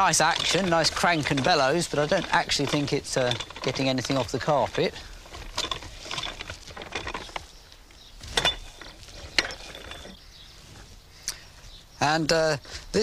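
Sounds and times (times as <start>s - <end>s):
crank and bellows clacking: 0.0s - 10.2s.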